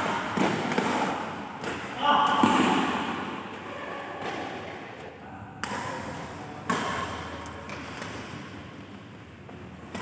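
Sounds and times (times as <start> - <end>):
racket hitting shuttlecock: 0.0 - 4.8, 5.6 - 8.6, 9.8 - 10.0.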